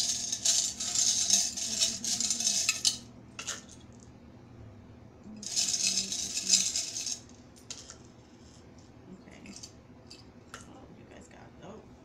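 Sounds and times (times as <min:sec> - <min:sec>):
box of charms rattling: 0:00.0 - 0:03.0, 0:05.4 - 0:07.2.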